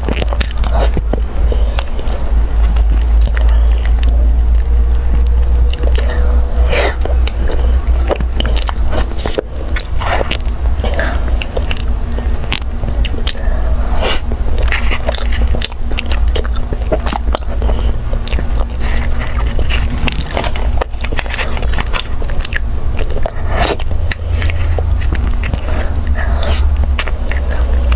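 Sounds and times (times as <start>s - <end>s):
steady low hum: 0.0s - 27.9s
wet eating smacks and chewing: 0.0s - 27.9s.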